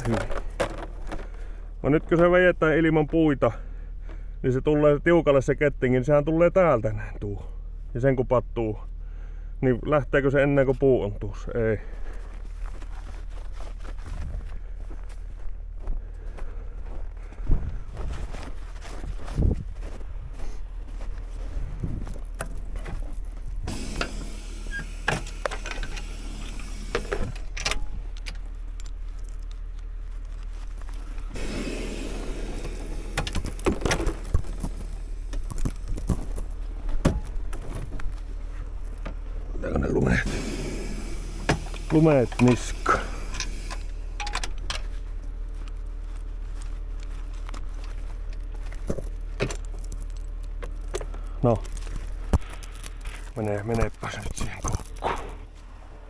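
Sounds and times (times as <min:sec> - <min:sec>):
steel chain clinking and rattling: 0:00.0 - 0:01.3, 0:21.2 - 0:24.7, 0:27.8 - 0:40.2, 0:47.5 - 0:55.6
low engine hum: 0:00.0 - 0:56.0.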